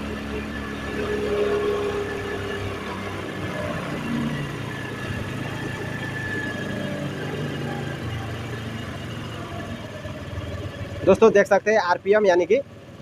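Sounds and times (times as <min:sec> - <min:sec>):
scooter engine idling: 0:00.0 - 0:13.0.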